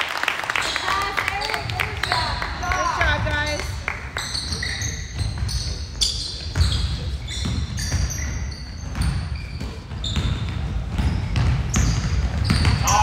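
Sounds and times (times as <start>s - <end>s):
basketball bouncing on gym floor: 1.3s - 13.0s
shoe squeaks: 4.1s - 13.0s.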